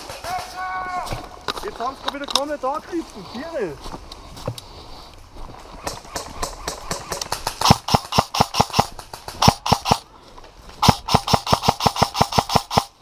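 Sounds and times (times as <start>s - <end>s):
footsteps on leaves: 0.4s - 5.8s.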